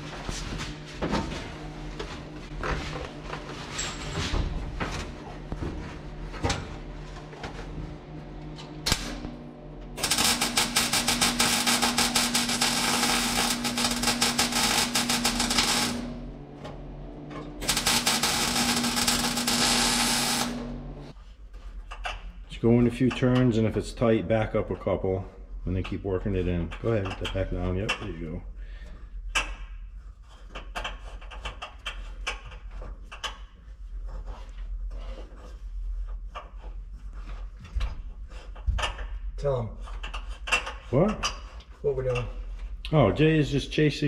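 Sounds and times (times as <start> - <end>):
welder hum: 0.0 - 21.2
welding arc crackle: 8.8 - 16.6, 17.6 - 21.2.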